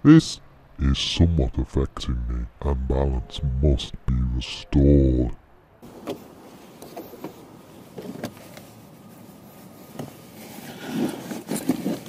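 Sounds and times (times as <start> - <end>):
rustling: 6.1 - 12.0.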